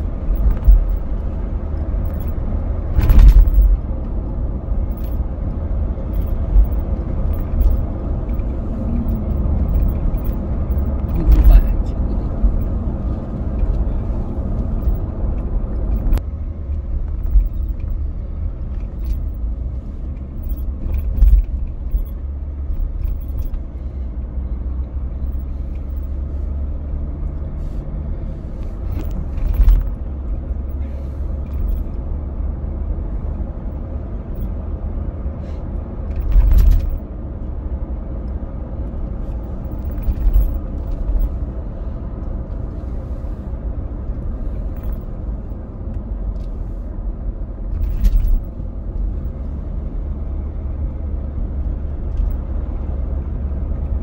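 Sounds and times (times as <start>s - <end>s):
car engine and road rumble: 0.0s - 54.0s
thumps from road surface: 2.9s - 3.8s.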